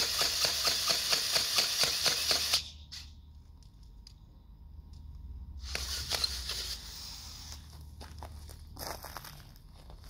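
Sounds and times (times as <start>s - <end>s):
drill auger boring into dry dirt: 0.0s - 2.7s, 5.6s - 7.6s.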